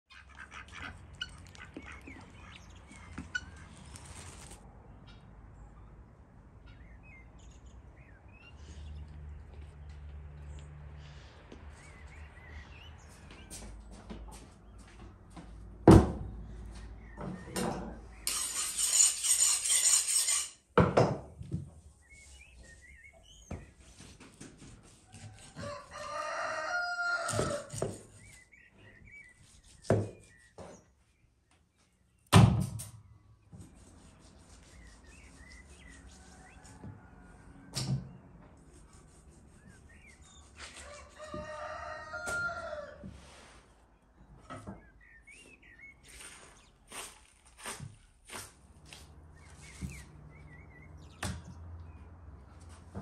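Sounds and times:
small birds chirping: 0.1 - 15.0, 21.9 - 32.3, 33.0 - 36.8, 38.7 - 42.2, 44.3 - 47.7, 49.3 - 52.6
rooster crowing: 25.1 - 27.8, 36.3 - 37.7, 40.8 - 43.1.

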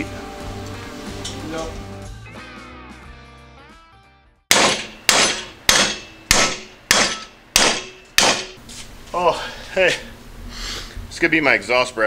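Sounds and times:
hammer clanging on metal plate: 4.5 - 8.6.

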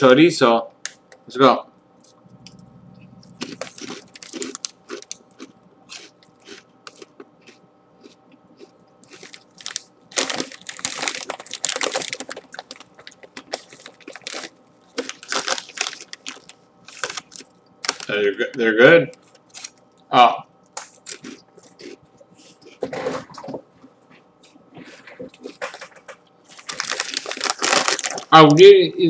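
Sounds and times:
crunching corn chips: 3.3 - 18.3, 19.0 - 19.9, 20.7 - 22.0, 25.3 - 28.7.

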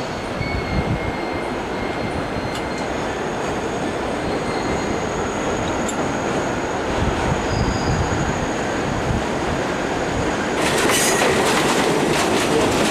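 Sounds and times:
train wheels rumbling on steel track: 0.0 - 12.9
high wheel squeal: 4.2 - 8.7.

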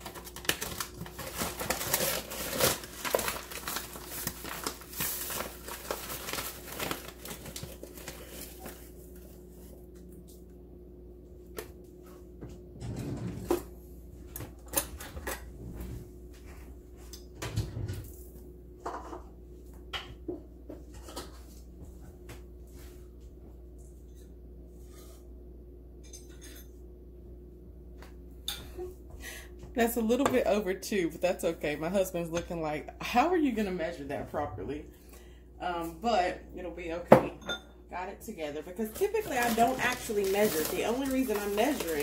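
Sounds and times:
cornmeal rattling in cup: 38.8 - 42.0.

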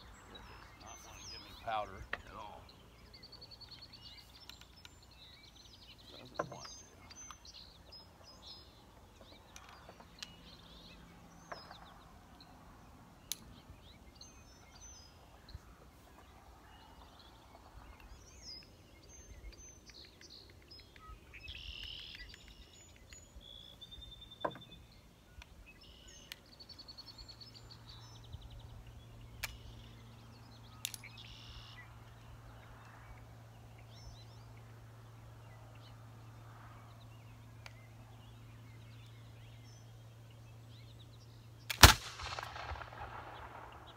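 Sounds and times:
birds chirping: 0.0 - 43.9
sharp clicks: 41.7 - 43.9.

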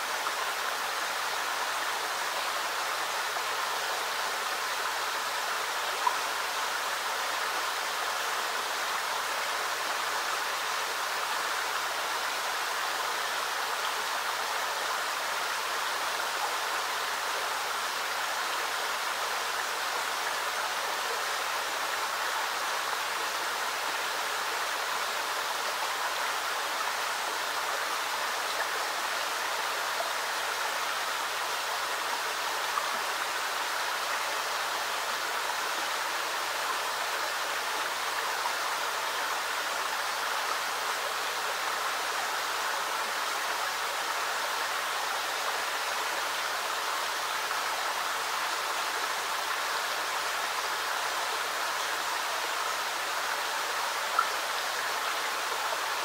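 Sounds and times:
creek water trickling over rocks: 0.0 - 56.0.

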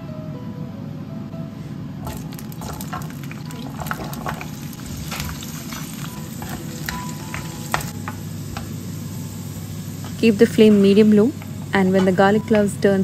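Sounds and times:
garlic sizzling in oil: 2.0 - 12.8.

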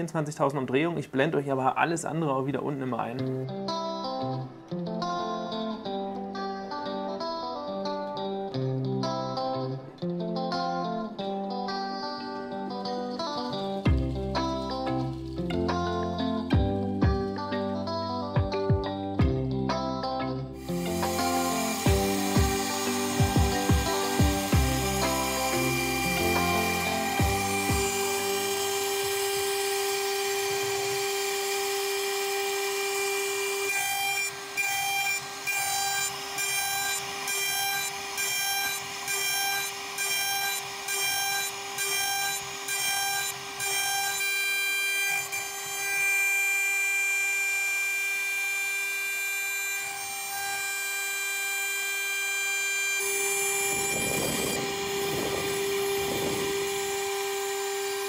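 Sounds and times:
end mill cutting wood: 20.6 - 58.0
router spindle high whine: 20.6 - 58.0.

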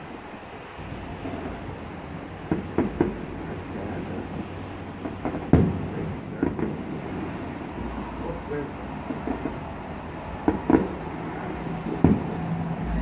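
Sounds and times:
distant fireworks bangs: 0.7 - 13.0
low rumble: 11.6 - 13.0.

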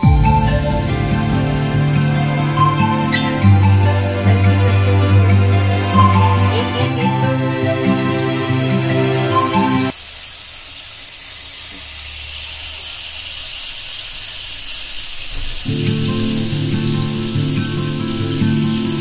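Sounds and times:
background music: 0.0 - 9.9, 15.7 - 19.0
chicken sizzling in a pan: 8.7 - 19.0.

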